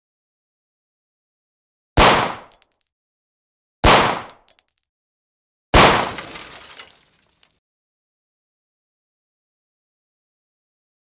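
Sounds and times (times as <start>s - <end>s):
gunshots through glass: 2.0s - 2.8s, 5.8s - 7.6s.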